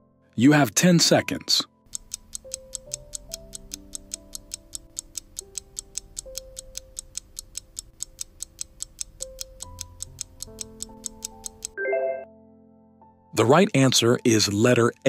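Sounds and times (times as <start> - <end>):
soft background music: 0.0 - 15.0
clock-like ticking: 1.8 - 11.8.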